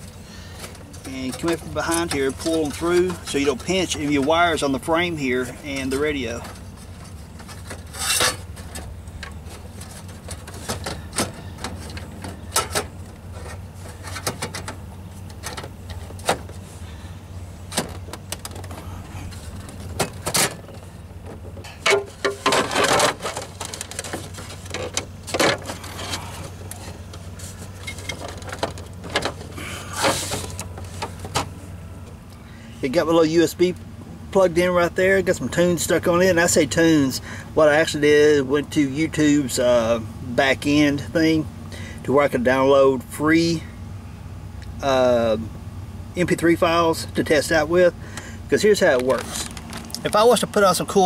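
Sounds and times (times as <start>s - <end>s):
low hum: 0.0s - 32.8s
scraping and rubbing: 5.7s - 14.7s, 22.0s - 31.3s, 49.1s - 49.9s.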